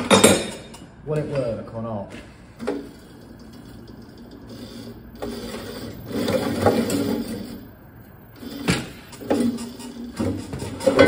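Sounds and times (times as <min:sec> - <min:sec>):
electric motor driving rollers: 0:02.6 - 0:11.0.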